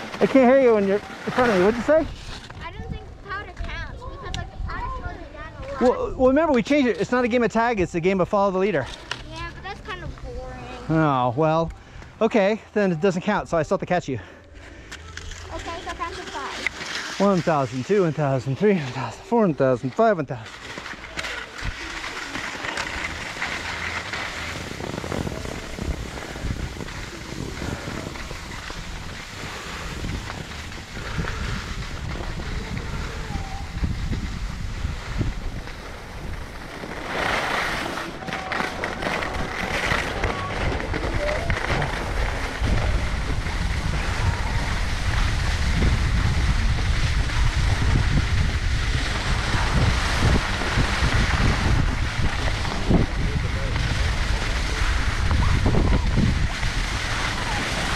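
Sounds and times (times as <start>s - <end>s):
skis sliding on snow: 0.0s - 3.8s, 12.8s - 57.9s
wind buffeting microphone: 0.0s - 8.2s, 21.5s - 57.9s.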